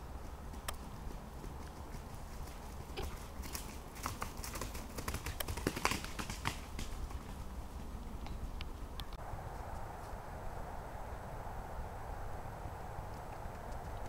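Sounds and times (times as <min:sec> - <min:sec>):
horse hoofbeats on leaves: 0:00.0 - 0:07.9.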